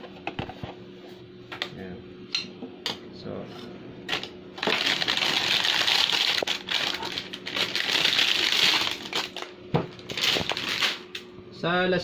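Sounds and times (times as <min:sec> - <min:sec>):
plastic bag crinkling: 0:04.6 - 0:11.2.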